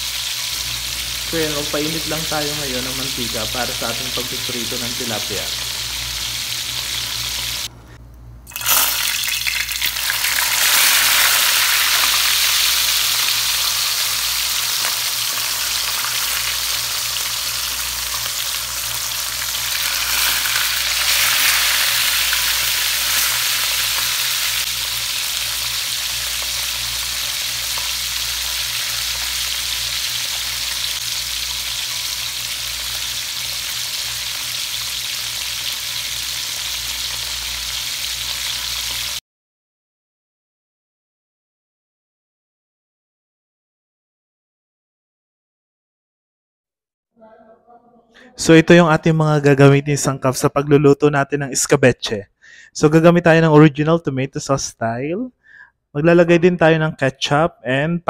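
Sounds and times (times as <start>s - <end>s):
oil sizzling in a pan: 0.0s - 7.7s, 8.5s - 39.2s.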